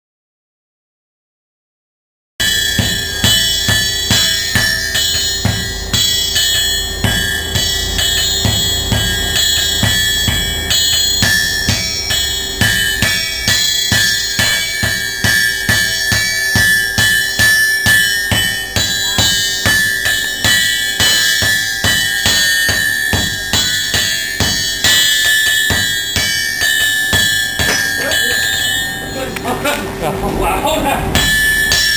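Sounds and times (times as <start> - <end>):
hammers striking hot steel on anvil: 2.4 - 29.8, 31.1 - 31.9.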